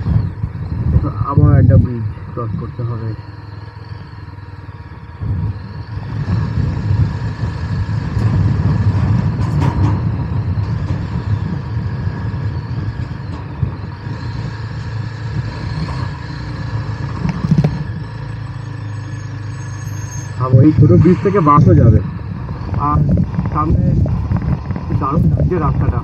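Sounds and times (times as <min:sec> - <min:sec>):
wind on microphone: 0:00.0 - 0:02.7, 0:05.0 - 0:16.2, 0:20.5 - 0:26.0
motorcycle engine running: 0:00.0 - 0:19.3, 0:20.4 - 0:26.0
tyres rumbling on bridge deck: 0:00.0 - 0:26.0.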